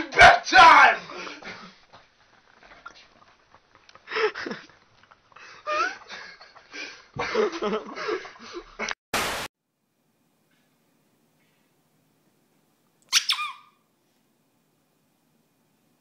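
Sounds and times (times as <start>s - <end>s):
loud hiss of noise: 9.2s - 9.5s.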